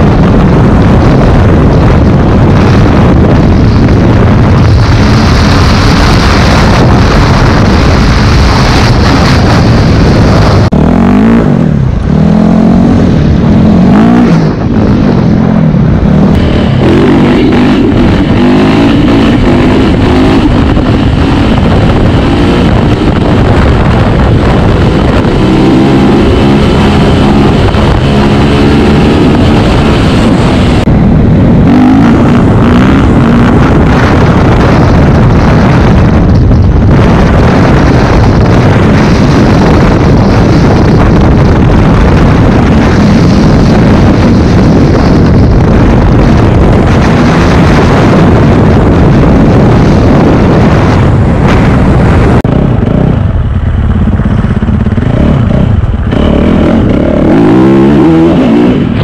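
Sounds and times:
motocross bike engine revving: 3.8s - 36.0s, 54.1s - 59.0s.

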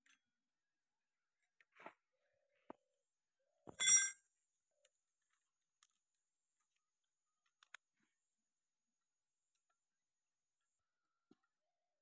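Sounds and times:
screwdriver clinking on metal: 3.7s - 4.2s.

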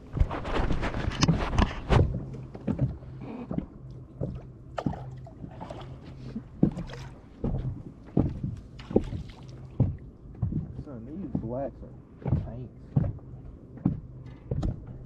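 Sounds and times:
steady low hum: 0.0s - 15.0s
knocks and thumps of gear: 13.8s - 15.0s.

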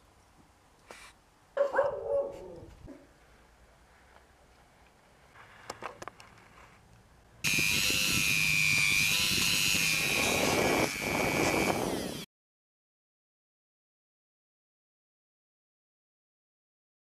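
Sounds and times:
bit grinding wood: 7.4s - 12.3s
rotary tool whining: 7.4s - 12.3s.

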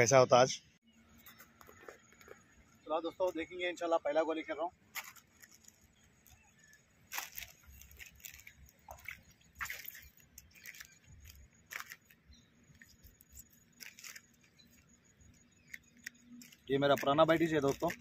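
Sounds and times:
gritty rustles of grain bait: 4.5s - 18.0s
small water splashes: 7.1s - 12.0s.

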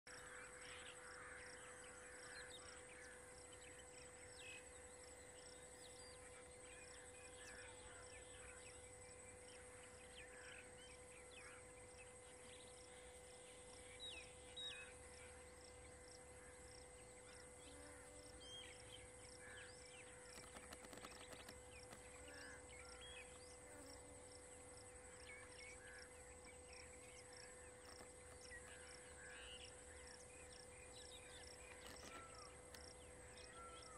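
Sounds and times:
insect drone: 0.1s - 33.9s.

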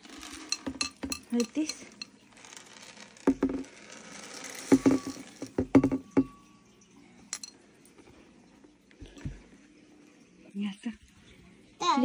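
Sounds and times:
kibble rattling into a bowl: 0.0s - 6.3s
sharp knocks: 4.7s - 6.3s.

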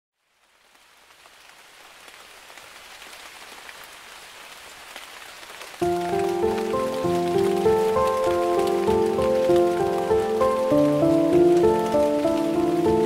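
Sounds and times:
steady rain pattering: 0.1s - 13.0s
music: 5.8s - 13.0s.

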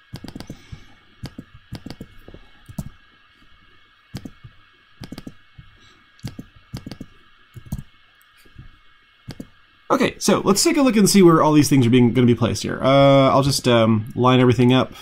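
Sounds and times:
faint steady hiss: 0.0s - 15.0s
keyboard key presses: 0.1s - 0.6s, 1.2s - 2.9s, 4.2s - 4.4s, 5.0s - 5.4s, 6.2s - 7.9s, 9.3s - 9.5s
computer mouse clicks: 0.1s - 3.0s, 4.1s - 7.9s, 9.3s - 9.6s.

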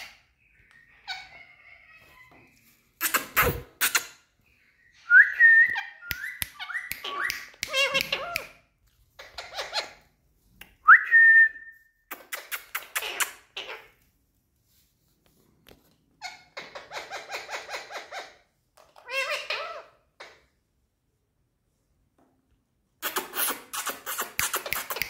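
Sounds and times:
parakeets chattering: 12.3s - 13.9s.

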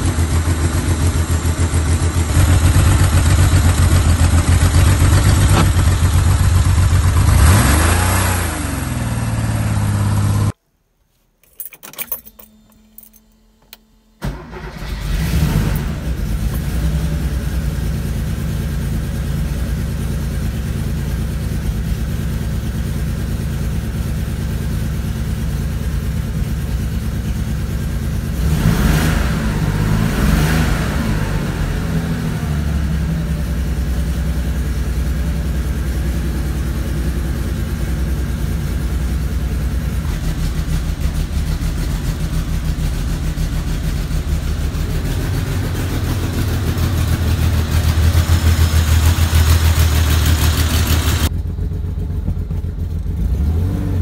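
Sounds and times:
car engine idling and revving: 0.0s - 10.6s, 11.7s - 54.0s.

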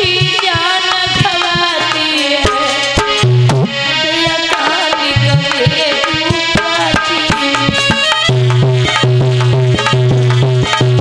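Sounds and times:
folk melody line: 0.0s - 11.0s
hand drum fast strokes: 4.4s - 11.0s.

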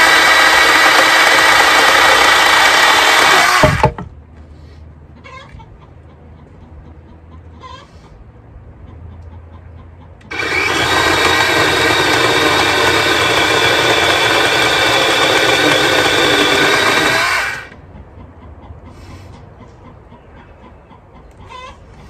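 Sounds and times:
chainsaw cutting log: 0.0s - 4.0s, 10.3s - 17.7s.

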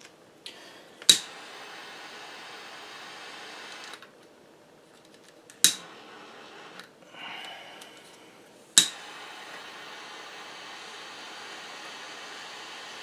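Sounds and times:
igniter clicks: 1.0s - 1.3s, 5.5s - 6.0s, 8.8s - 9.1s
torch flame hissing: 1.1s - 4.0s, 5.6s - 7.4s, 8.7s - 13.0s.

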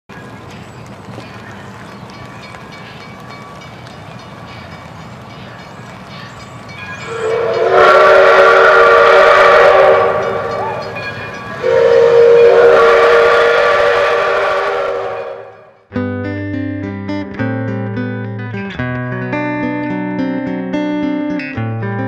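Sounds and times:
hissing steam: 6.8s - 15.7s
steam locomotive whistle: 7.0s - 15.8s
plucked guitar music: 15.9s - 22.0s.

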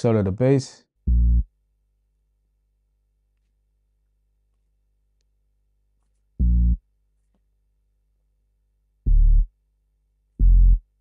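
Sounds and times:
deep bass notes: 1.1s - 1.5s, 6.4s - 6.8s, 9.1s - 9.5s, 10.4s - 11.0s.

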